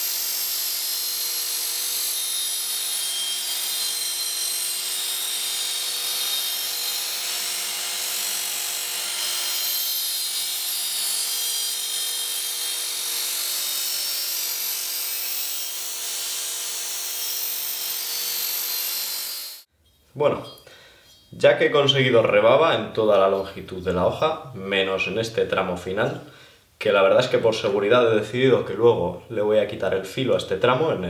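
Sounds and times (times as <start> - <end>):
belt sharpener motor humming: 0.0 - 19.7
blade grinding on abrasive belt: 0.0 - 19.7.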